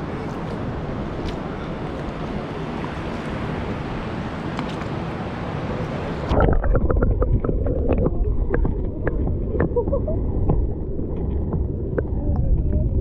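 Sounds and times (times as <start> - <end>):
shallow surf: 0.0 - 13.0
wind on microphone: 0.0 - 13.0
underwater gurgles and bubbles: 5.7 - 13.0.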